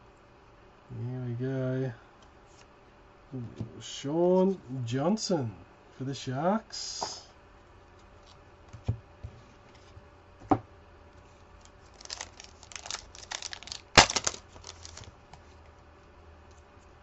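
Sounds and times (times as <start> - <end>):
wrapper crinkling and tearing: 11.6 - 15.2.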